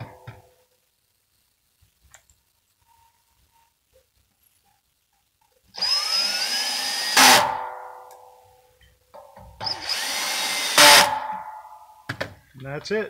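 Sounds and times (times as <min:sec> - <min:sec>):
cordless drill driving screws: 0:05.8 - 0:07.6, 0:09.6 - 0:11.2.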